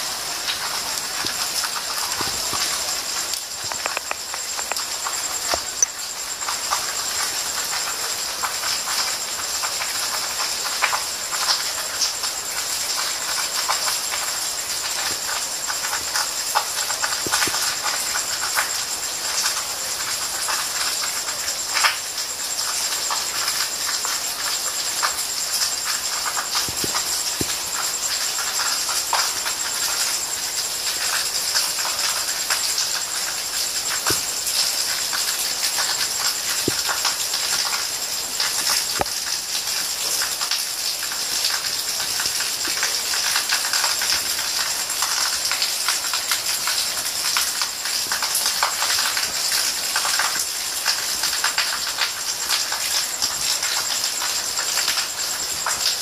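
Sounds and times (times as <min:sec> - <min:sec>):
steady rain: 0:00.0 - 0:56.0
drops tapping on hard surfaces: 0:03.6 - 0:04.8.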